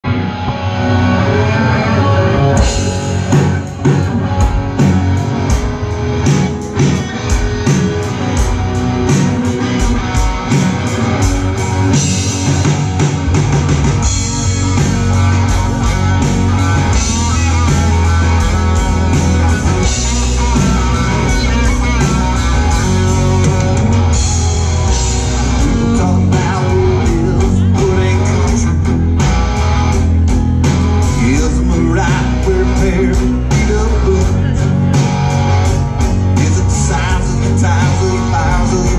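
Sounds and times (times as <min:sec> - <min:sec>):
rock band playing: 0:00.0 - 0:38.9
drum beat: 0:02.7 - 0:26.6.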